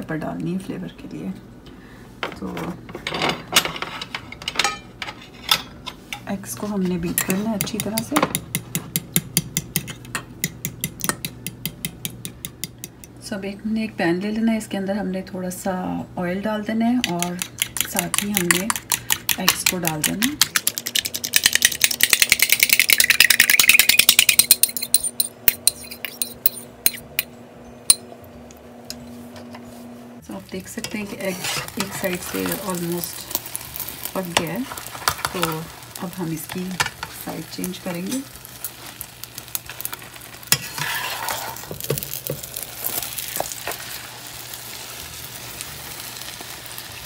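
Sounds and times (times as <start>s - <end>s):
low steady hum: 0.0s - 46.9s
spatula tapping pan: 7.6s - 13.1s, 17.0s - 26.6s
egg crackling in hot oil: 17.4s - 26.6s, 31.6s - 47.0s.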